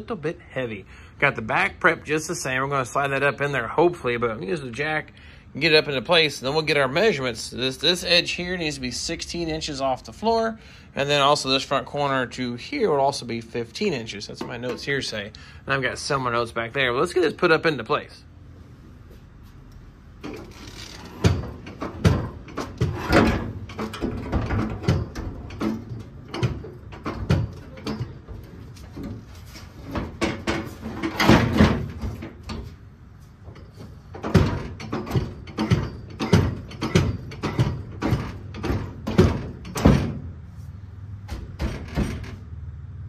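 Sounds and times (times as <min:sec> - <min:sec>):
metallic clunks and scrapes: 0:20.2 - 0:32.8, 0:33.4 - 0:40.3.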